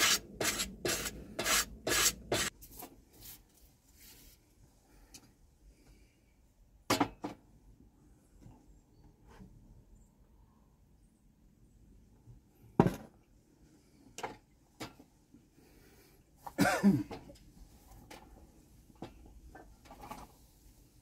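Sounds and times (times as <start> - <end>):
rasping sound: 0.0 - 2.5.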